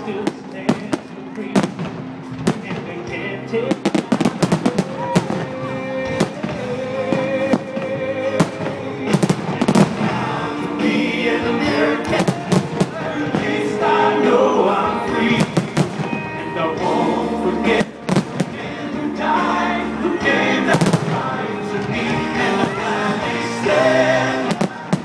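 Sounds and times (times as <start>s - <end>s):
fireworks bangs and crackles: 0.0s - 10.8s, 12.0s - 13.8s, 15.3s - 16.3s, 17.8s - 18.9s, 20.6s - 22.8s, 23.4s - 25.0s
music playing: 0.0s - 25.0s.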